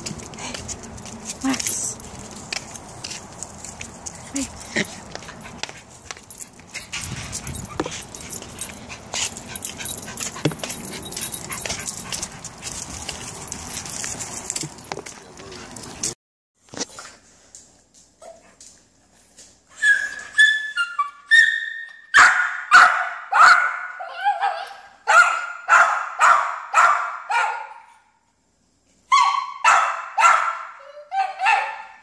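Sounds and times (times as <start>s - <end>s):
dog barking in yaps: 21.3s - 28.0s, 29.1s - 32.0s.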